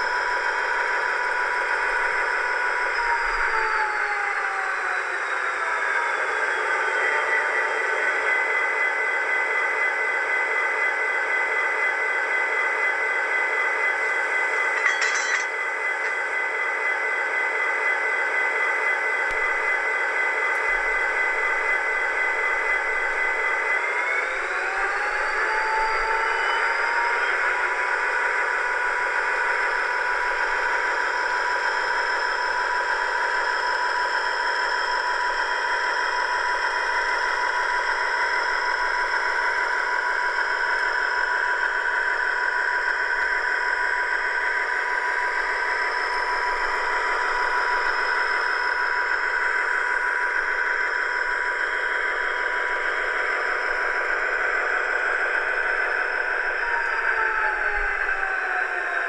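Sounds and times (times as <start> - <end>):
thin diesel engine drone: 18.5 - 59.0.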